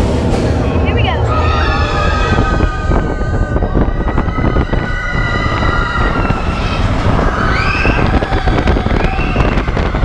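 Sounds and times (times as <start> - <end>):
roller coaster train rumbling: 0.0 - 10.0
wind on microphone: 1.4 - 10.0.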